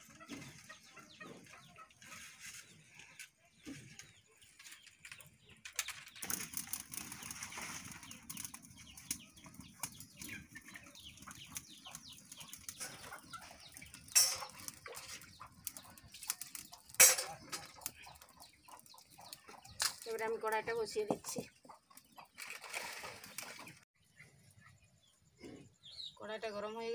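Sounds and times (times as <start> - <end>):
chickens clucking: 0.0 - 5.7, 6.3 - 26.0
fire crackling: 5.6 - 21.0
metal pots clanking: 12.7 - 18.0.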